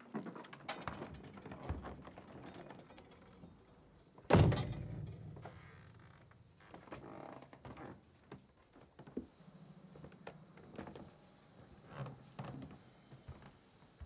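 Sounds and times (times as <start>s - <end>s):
door shutting with heavy thud: 4.3s - 5.6s.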